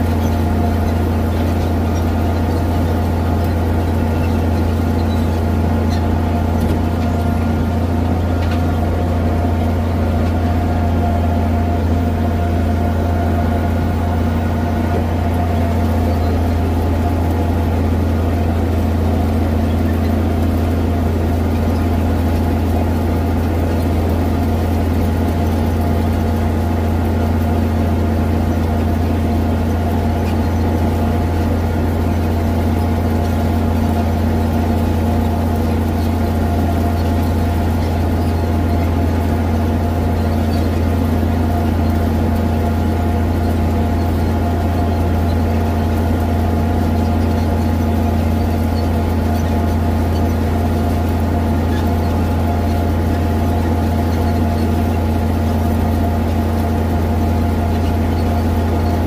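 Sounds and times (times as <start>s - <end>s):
tractor engine droning: 0.0s - 59.0s.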